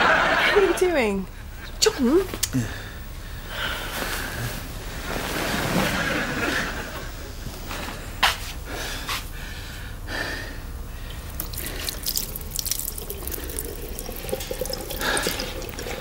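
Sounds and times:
water dripping and splashing: 0:11.1 - 0:16.0.

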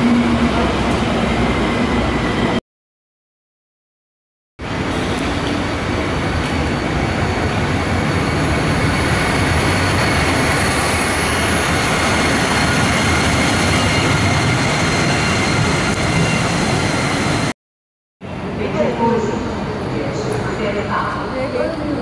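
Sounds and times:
train wheels rolling on track: 0:04.7 - 0:17.5.

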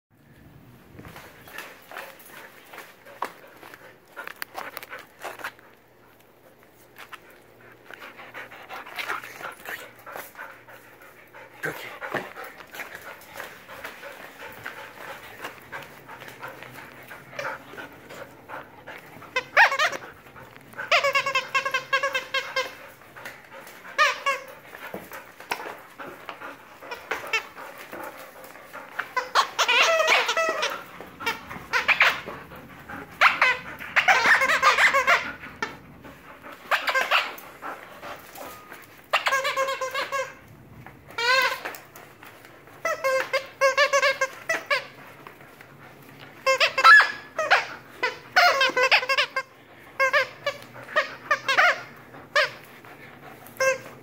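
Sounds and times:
dog squealing: 0:17.4 - 0:22.8, 0:29.0 - 0:35.8, 0:36.7 - 0:37.5, 0:38.4 - 0:40.4, 0:46.4 - 0:52.7.

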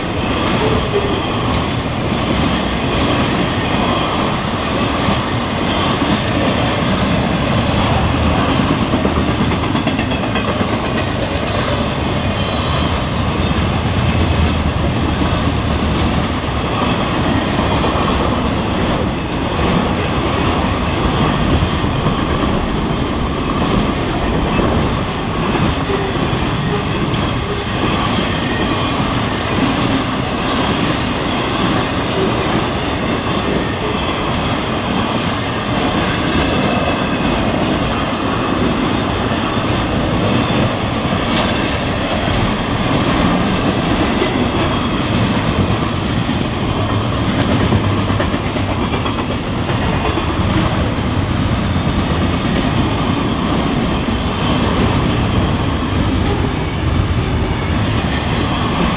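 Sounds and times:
freight train rolling past: 0:00.0 - 0:58.9
steel wheels clattering on rail: 0:00.0 - 0:58.9.

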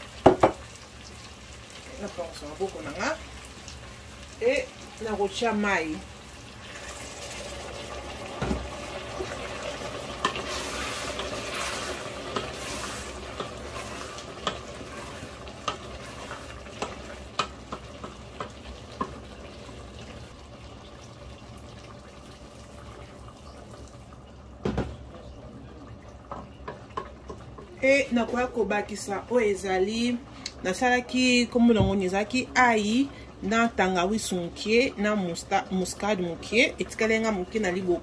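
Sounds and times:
pot hissing: 0:00.0 - 0:24.2
water pouring into pot: 0:06.0 - 0:27.0.

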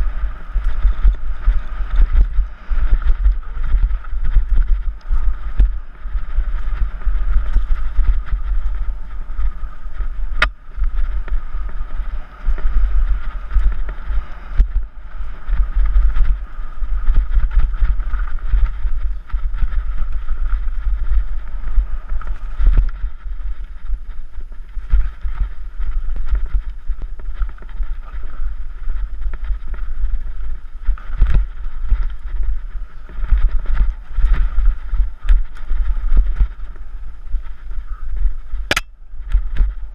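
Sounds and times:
wind rumble on microphone: 0:00.0 - 0:39.9
sharp click: 0:38.7 - 0:38.9.

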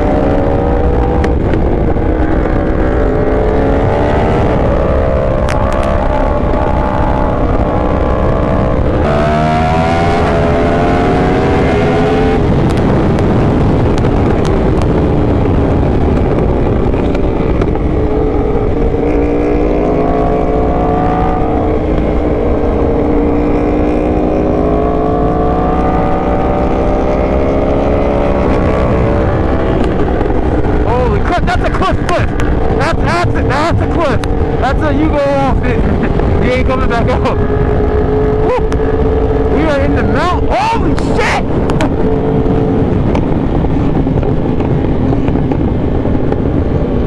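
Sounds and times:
motorcycle engine revving: 0:00.0 - 0:47.0.

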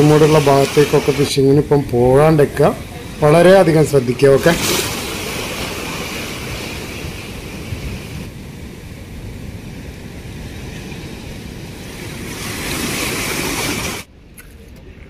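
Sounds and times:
surf breaking over rocks: 0:00.0 - 0:14.1
wind buffeting microphone: 0:00.0 - 0:14.1.

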